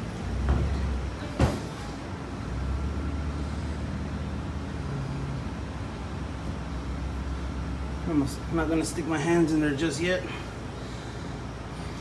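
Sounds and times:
condensing unit humming: 4.4s - 12.0s.

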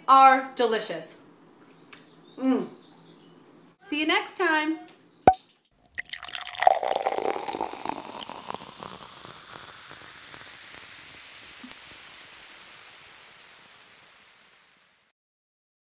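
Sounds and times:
crackles: 5.7s - 15.1s
steady hiss: 6.8s - 15.1s.

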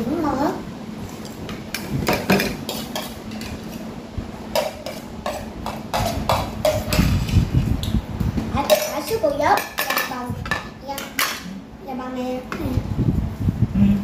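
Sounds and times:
steady low hum: 0.0s - 14.0s
utensils clinking on ceramic bowls: 1.2s - 3.8s, 4.5s - 7.1s, 8.6s - 11.5s.

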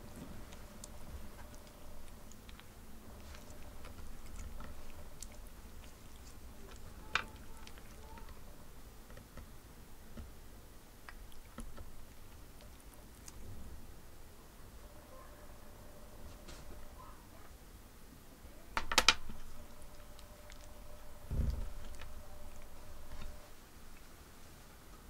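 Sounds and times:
cat chewing on toy cord: 0.0s - 13.9s, 19.2s - 24.3s.

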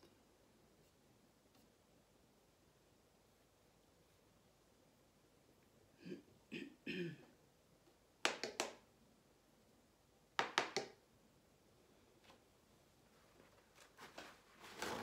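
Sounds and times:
sharp taps of spreading tool: 10.4s - 11.0s.

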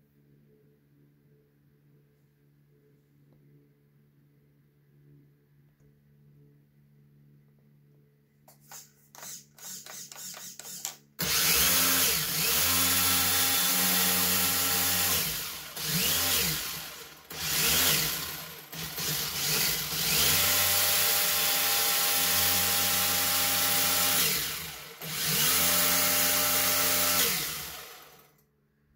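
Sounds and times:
rc car motor whining: 9.2s - 28.3s.

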